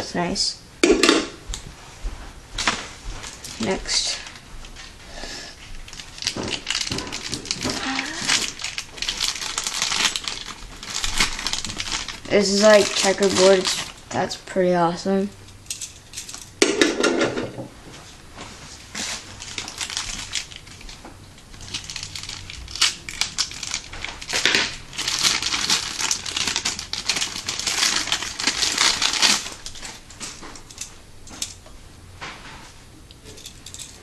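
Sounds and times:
plastic packaging crinkling: 5.6s - 14.2s, 18.8s - 31.6s.

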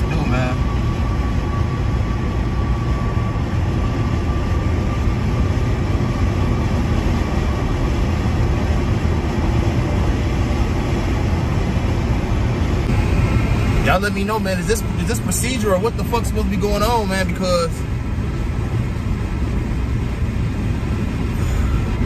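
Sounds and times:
road noise inside car: 0.0s - 22.0s.

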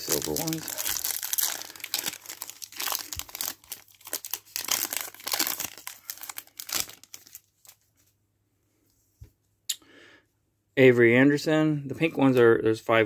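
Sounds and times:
foil wrapper crinkling: 0.0s - 8.1s.

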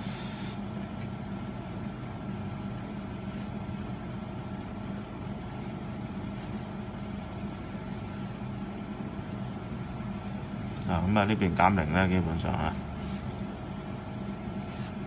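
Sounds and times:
low room hum: 0.0s - 15.0s
pencil writing on paper: 1.4s - 8.4s, 12.7s - 15.0s.

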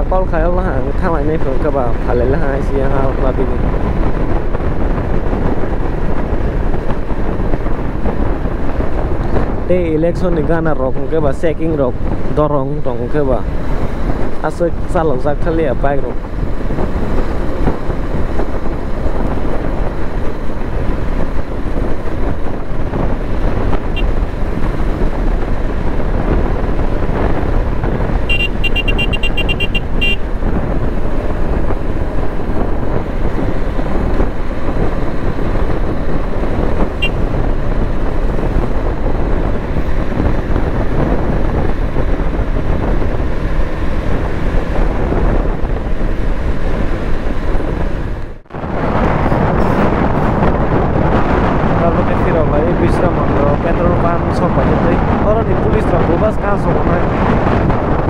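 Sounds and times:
tyres on road: 0.0s - 58.0s
wind buffeting the microphone: 0.0s - 58.0s
motorcycle engine running: 15.6s - 48.4s
vehicle horn: 23.9s - 24.2s, 28.2s - 30.3s, 37.0s - 37.2s.

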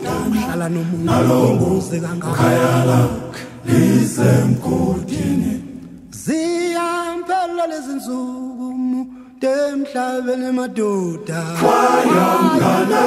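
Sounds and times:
choir singing in harmony: 0.0s - 6.9s, 11.3s - 13.0s.

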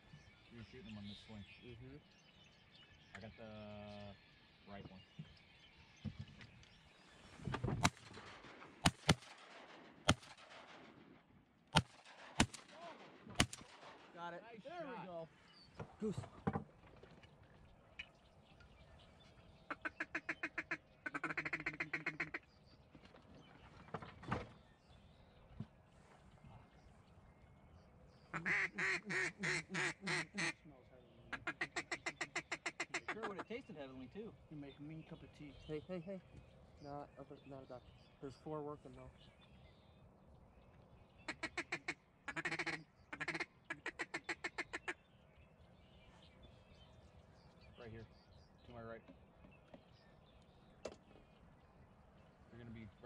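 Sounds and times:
duck call quacking chatter: 19.7s - 22.4s, 28.3s - 30.7s, 31.3s - 33.7s, 41.3s - 45.0s.

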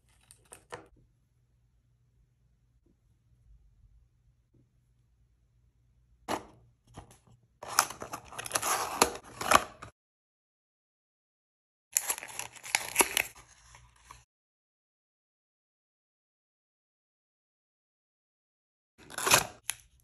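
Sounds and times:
packaging crinkling and tearing: 7.6s - 9.8s, 12.0s - 14.2s.

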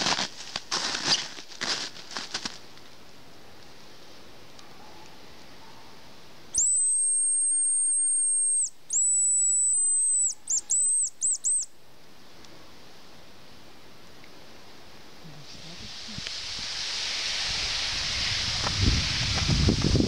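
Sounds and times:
high whistled decoy notes: 6.5s - 11.7s.

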